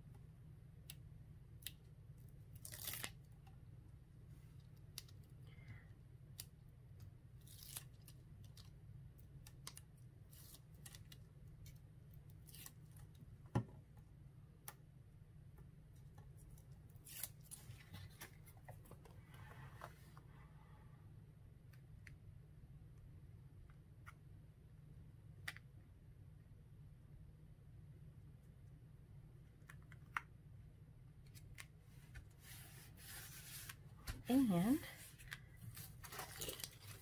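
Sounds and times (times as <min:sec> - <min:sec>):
cardstock and tape rustling: 0:31.4 - 0:37.0.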